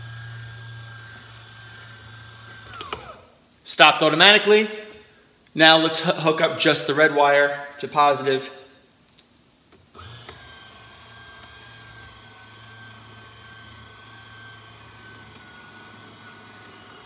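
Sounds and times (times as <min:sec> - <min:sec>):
antenna motor electric whine: 0:00.0 - 0:03.4, 0:09.7 - 0:17.0.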